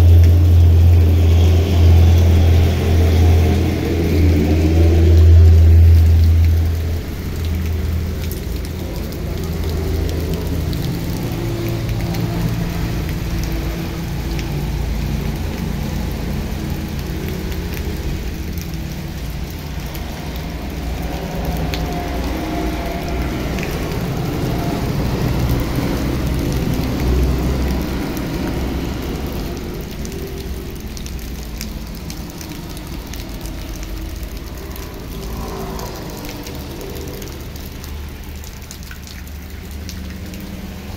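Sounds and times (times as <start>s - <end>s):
heavy rain pouring on ground: 0.0s - 40.9s
low rumble: 32.1s - 38.1s.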